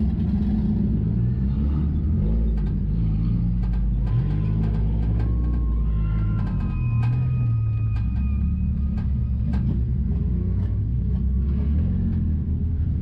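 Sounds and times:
race car engine running: 0:00.0 - 0:13.0
sharp clicks and rattles: 0:02.3 - 0:10.0.

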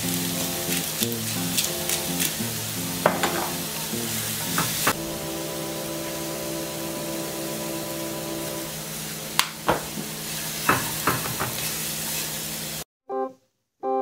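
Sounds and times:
greens sizzling in a skillet: 0:00.0 - 0:12.8
wooden spoon knocking on pan: 0:03.0 - 0:03.6, 0:09.6 - 0:10.1, 0:10.7 - 0:11.6.

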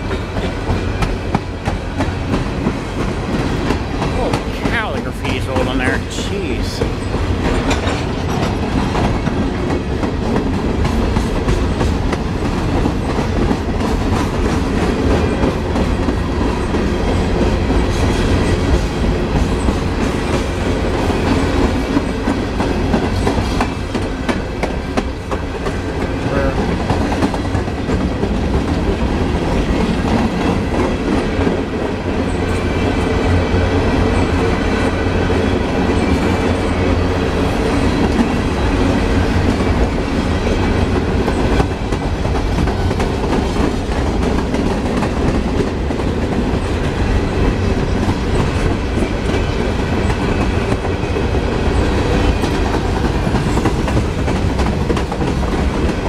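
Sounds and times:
clickety-clack over rail joints: 0:00.0 - 0:06.2, 0:06.8 - 0:56.0
steel wheels rumbling on rail: 0:00.0 - 0:56.0.

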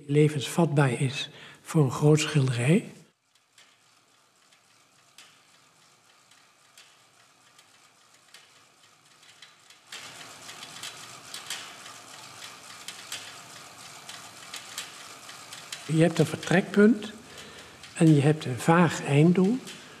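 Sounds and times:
exercise bike flywheel whir: 0:01.4 - 0:20.0
clicking mechanism: 0:19.0 - 0:20.0.

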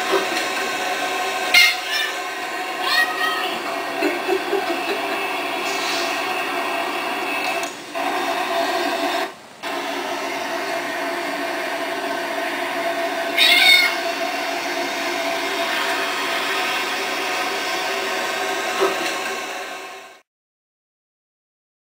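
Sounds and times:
steady background hum: 0:00.0 - 0:08.0.

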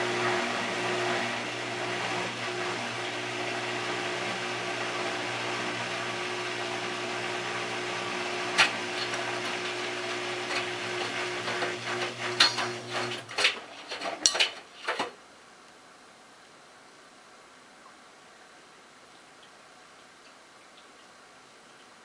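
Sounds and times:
washing machine motor hum: 0:00.0 - 0:14.6.

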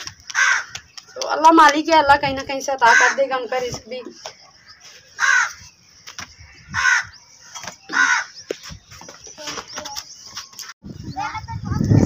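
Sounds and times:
crow cawing: 0:00.2 - 0:01.3, 0:02.8 - 0:03.4, 0:05.2 - 0:05.7, 0:06.6 - 0:08.4.

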